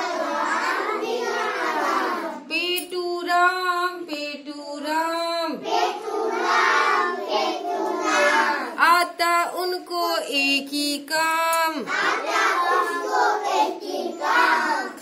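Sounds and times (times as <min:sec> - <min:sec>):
children chanting in chorus: 0:00.0 - 0:02.5, 0:05.6 - 0:08.8, 0:11.7 - 0:15.0.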